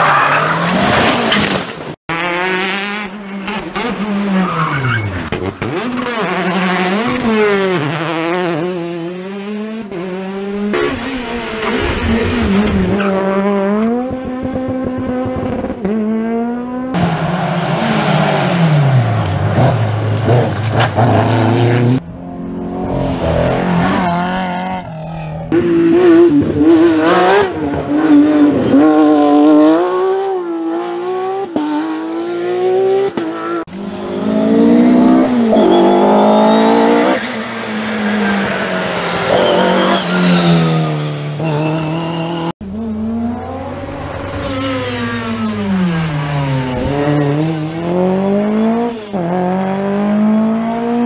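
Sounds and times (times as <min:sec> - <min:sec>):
tyres squealing and skidding: 0:00.0 - 0:01.6, 0:04.2 - 0:05.4, 0:33.8 - 0:42.5
rally car engines revving: 0:00.0 - 0:51.0.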